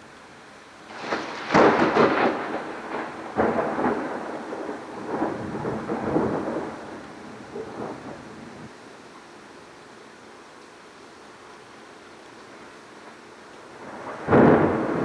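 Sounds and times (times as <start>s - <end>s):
heavy rain hiss: 0.0s - 15.0s
thunder crack and rumbles: 0.9s - 8.7s, 13.8s - 15.0s.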